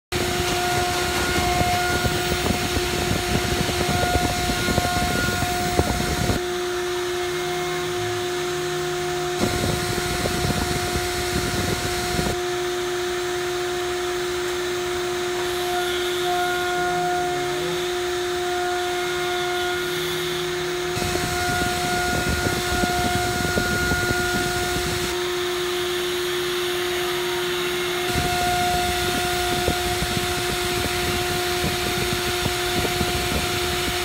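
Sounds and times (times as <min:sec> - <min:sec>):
end mill cutting metal: 0:00.1 - 0:34.0
milling spindle hum: 0:20.4 - 0:25.4, 0:26.5 - 0:34.0.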